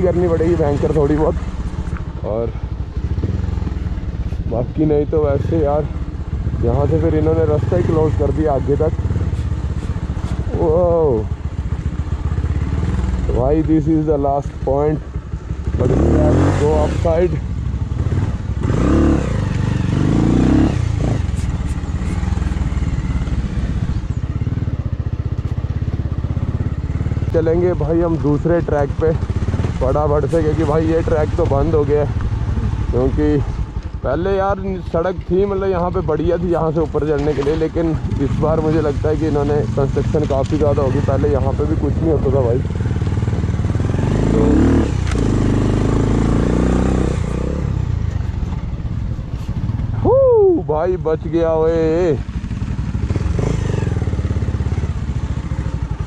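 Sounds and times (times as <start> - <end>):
motorcycle engine at low speed: 0.0 - 56.0.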